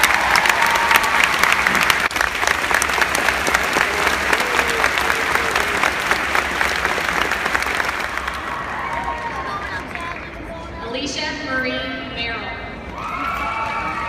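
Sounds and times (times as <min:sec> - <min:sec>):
close hand claps: 0:00.0 - 0:09.2
crowd applauding: 0:00.0 - 0:10.6, 0:12.9 - 0:14.0.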